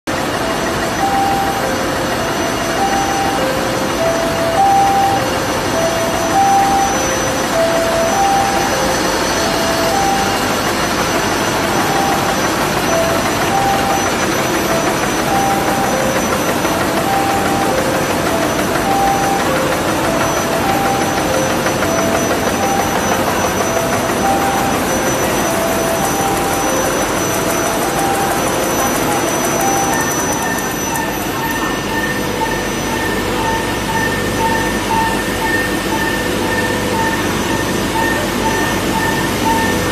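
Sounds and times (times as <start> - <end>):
machine running steadily: 0.1 - 39.9.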